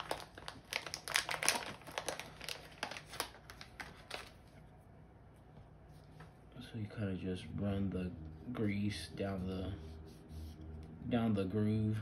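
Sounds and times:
plastic packaging crinkling: 0.0s - 4.6s.

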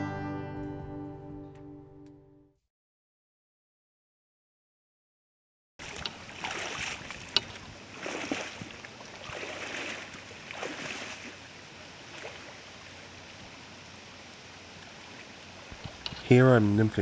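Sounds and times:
rushing river water: 5.8s - 16.8s.

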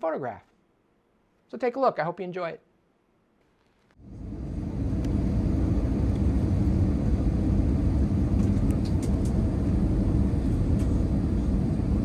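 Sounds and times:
jet engines rumbling in cabin: 4.0s - 12.0s.

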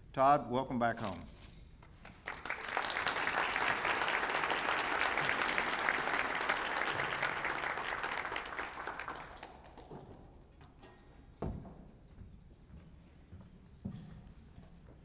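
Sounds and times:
audience applauding: 2.0s - 9.9s.

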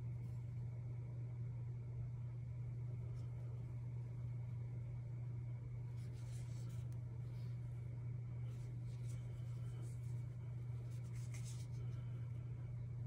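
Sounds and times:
steady low hum: 0.0s - 13.0s
cloth glove rubbing on knife: 5.9s - 7.8s, 8.4s - 12.2s.

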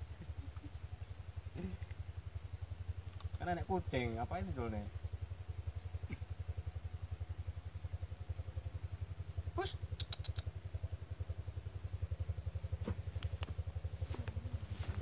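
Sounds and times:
small engine idling: 0.0s - 15.0s
faint clicks: 3.0s - 3.4s, 10.0s - 10.5s, 13.1s - 13.6s.

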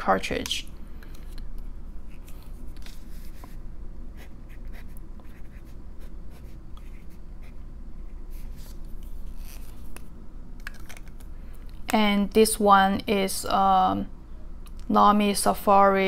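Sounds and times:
low steady background hum: 0.0s - 16.0s
pen nib scratching paper: 4.2s - 7.6s.

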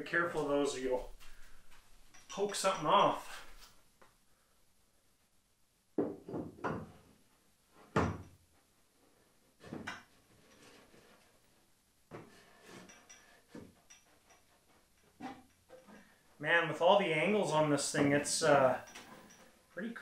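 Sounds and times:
hollow knocks and clunks: 6.0s - 7.2s, 7.8s - 8.4s, 9.6s - 11.2s.

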